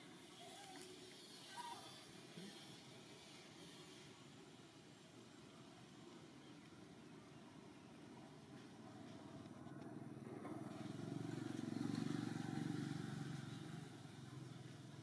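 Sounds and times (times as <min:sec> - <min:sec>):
vehicle engine passing by: 0:10.2 - 0:15.0.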